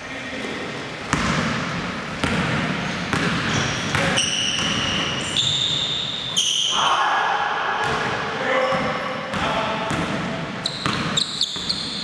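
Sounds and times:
sneakers squeaking on floor: 0:01.1 - 0:07.0, 0:07.8 - 0:12.0
basketball bouncing on hardwood floor: 0:02.1 - 0:05.0.

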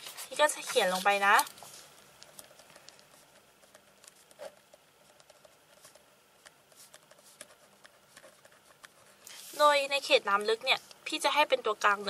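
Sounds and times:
ballpoint pen scratching paper: 0:02.4 - 0:09.1.

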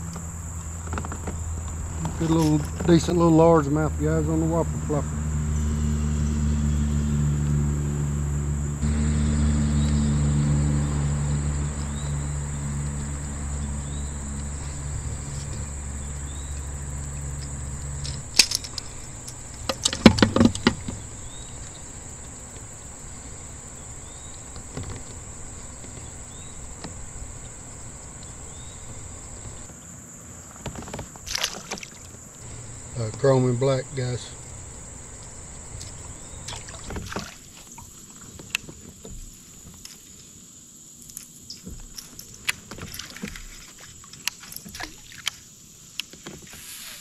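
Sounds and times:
low steady hum: 0:00.0 - 0:29.8, 0:31.3 - 0:37.8
insects droning: 0:00.0 - 0:47.0
sharp clicks and clatters: 0:16.5 - 0:22.7.

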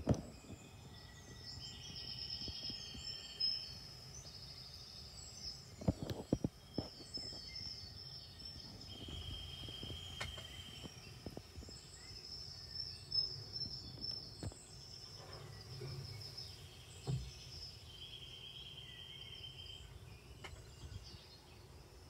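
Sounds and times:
bird chirps: 0:00.0 - 0:22.0
faint insect trilling: 0:00.7 - 0:20.4.

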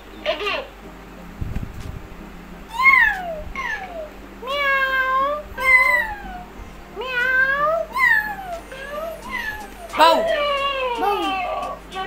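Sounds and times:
toy electronic meows: 0:02.7 - 0:11.7.

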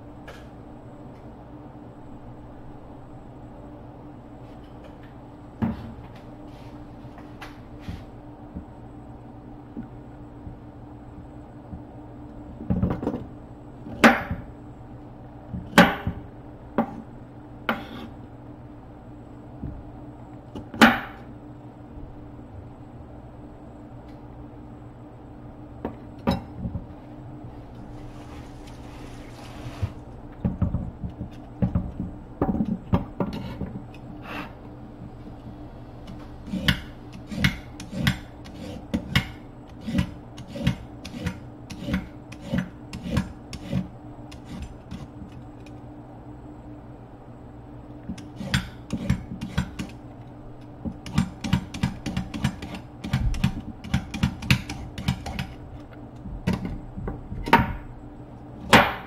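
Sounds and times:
peeler scraping a carrot: 0:36.4 - 0:45.1.

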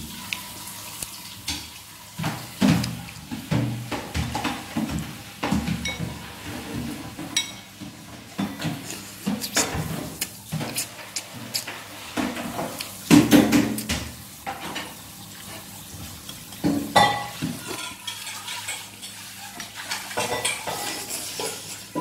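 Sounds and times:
metal spoon scraping a bowl: 0:19.8 - 0:22.0.

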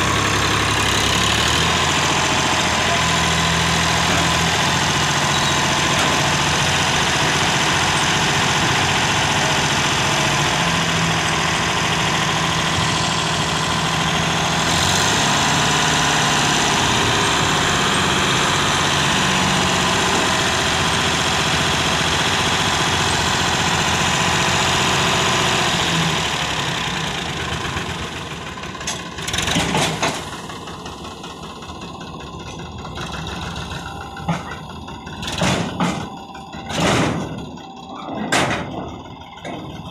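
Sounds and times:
tractor engine running: 0:00.0 - 0:39.9.

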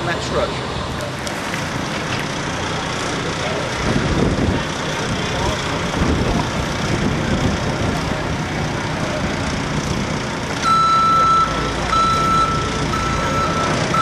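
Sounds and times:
diesel engine working: 0:00.0 - 0:14.0
reversing alarm beeps: 0:10.6 - 0:14.0.

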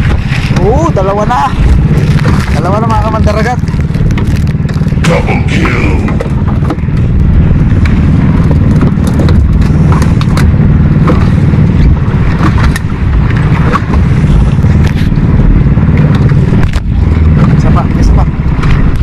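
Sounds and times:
engine humming: 0:00.0 - 0:19.0.

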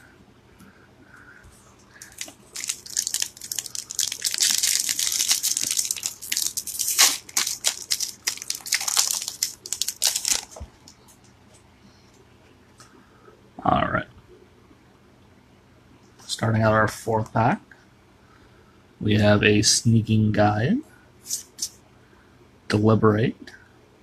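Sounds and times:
foil wrapper crinkling and tearing: 0:02.0 - 0:11.0.

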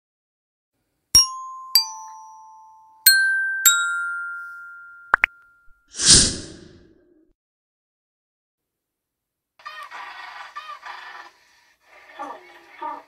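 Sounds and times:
bell-like mallet notes: 0:01.2 - 0:05.9.

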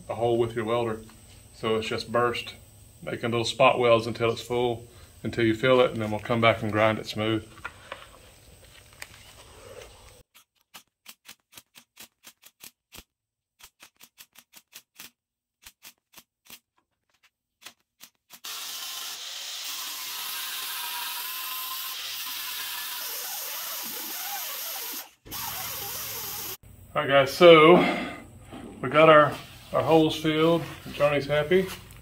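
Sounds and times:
welder spot-weld bursts: 0:18.0 - 0:26.6
harsh hiss: 0:18.5 - 0:26.6.

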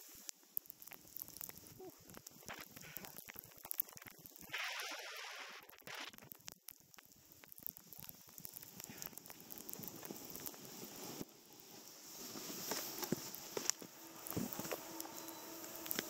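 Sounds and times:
snowboard scraping on snow: 0:09.7 - 0:16.0.

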